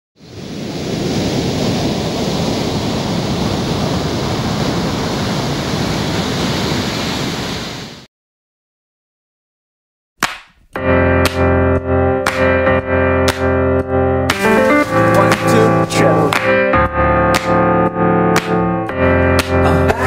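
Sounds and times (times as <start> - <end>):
ocean surf: 0.2 - 8.1, 14.3 - 16.7.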